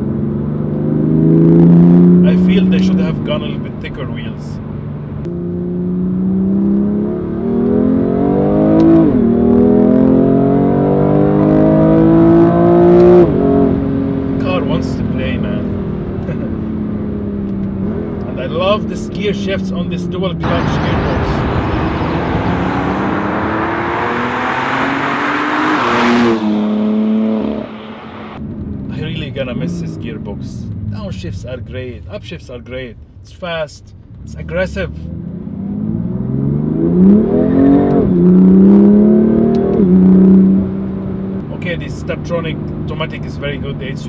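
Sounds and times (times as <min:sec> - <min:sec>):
car engine accelerating: 0:00.0 - 0:32.1, 0:34.0 - 0:44.0
car accelerating past: 0:20.4 - 0:28.4, 0:35.0 - 0:41.5.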